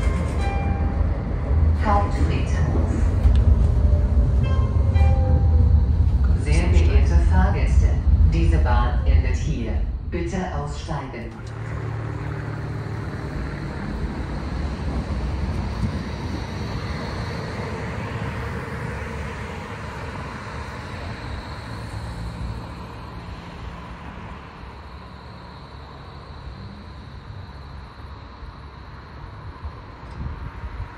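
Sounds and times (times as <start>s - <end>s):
tram running: 0.0s - 30.9s.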